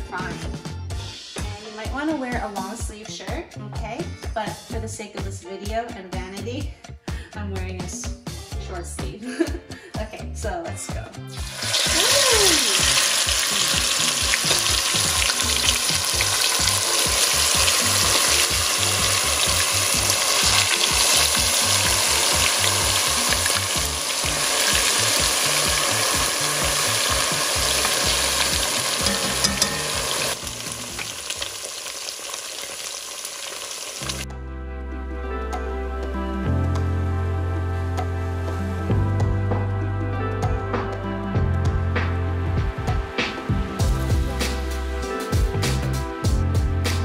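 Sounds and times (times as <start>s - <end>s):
music: 0.0s - 47.0s
ribs sizzling in hot oil: 11.3s - 34.3s.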